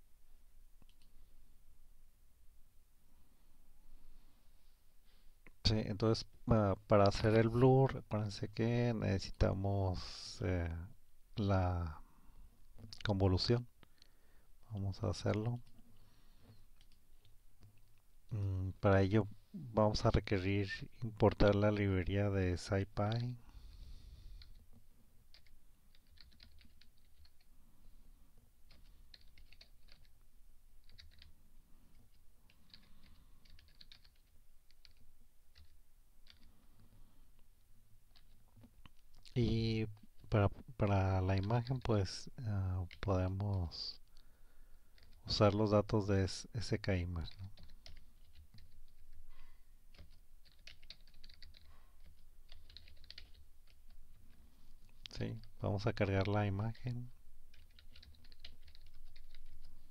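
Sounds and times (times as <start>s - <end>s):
faint low hum: 0.0s - 59.9s
faint keyboard typing: 0.8s - 1.2s, 13.8s - 18.0s, 22.8s - 23.4s, 24.3s - 27.6s, 28.4s - 45.7s, 46.7s - 59.9s.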